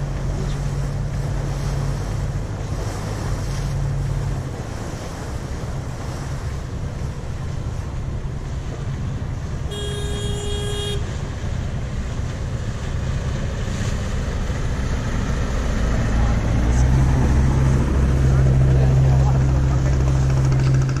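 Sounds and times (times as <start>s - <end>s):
ferry engine droning: 0.0s - 21.0s
wind and water rushing: 0.0s - 21.0s
boat horn toot: 9.6s - 11.3s.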